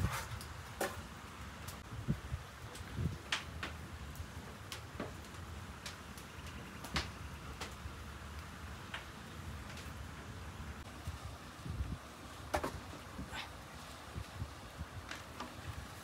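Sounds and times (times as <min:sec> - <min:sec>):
sharp clicks and light knocks: 0:02.7 - 0:07.8.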